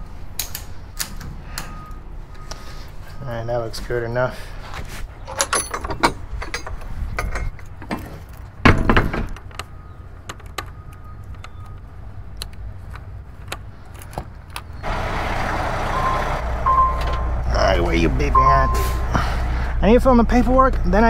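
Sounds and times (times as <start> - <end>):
metallic clicks and jingling: 5.2 - 8.6.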